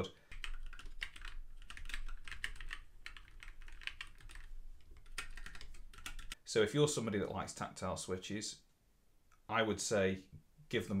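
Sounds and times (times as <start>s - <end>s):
fast mechanical keyboard typing: 0.3s - 6.4s.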